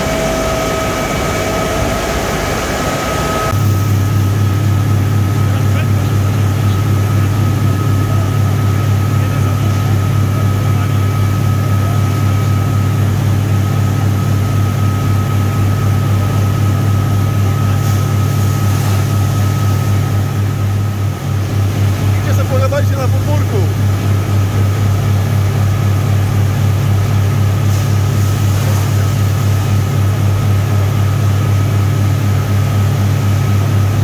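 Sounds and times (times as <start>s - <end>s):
electric motors humming: 0.0s - 25.8s
thin steady whine: 0.0s - 34.0s.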